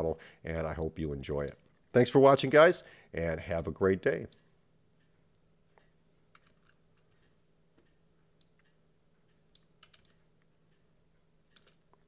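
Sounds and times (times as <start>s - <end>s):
keyboard clicks: 5.8s - 10.8s, 11.5s - 12.0s.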